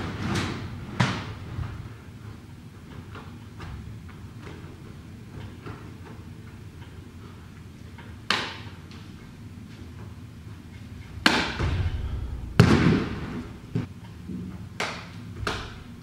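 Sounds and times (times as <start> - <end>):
low rumble: 11.5 - 13.9.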